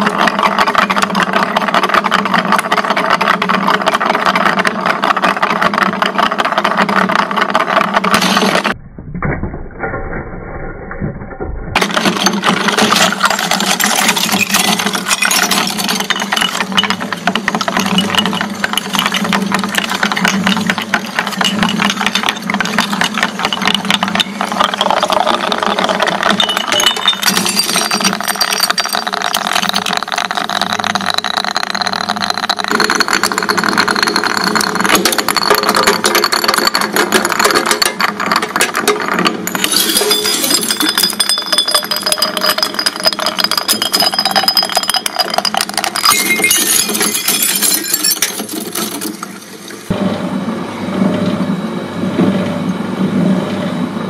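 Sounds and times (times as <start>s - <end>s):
glass crunching and cracking: 11.8s - 16.9s, 24.6s - 38.0s, 39.6s - 49.1s.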